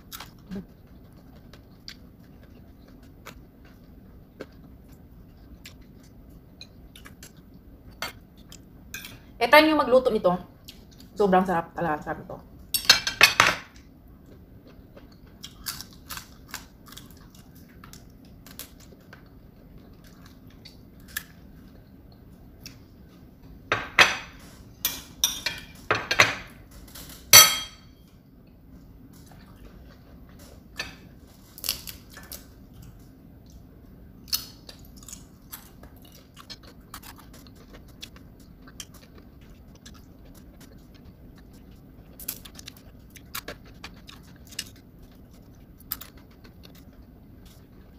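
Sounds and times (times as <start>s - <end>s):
chewing and crunching: 0.0s - 9.3s, 13.7s - 23.1s, 29.0s - 47.9s.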